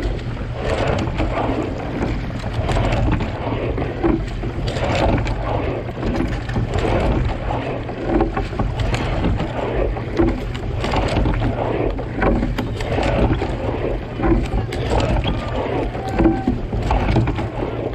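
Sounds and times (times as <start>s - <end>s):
steady low rumble: 0.0s - 17.9s
water rushing along boat hull: 0.0s - 17.9s.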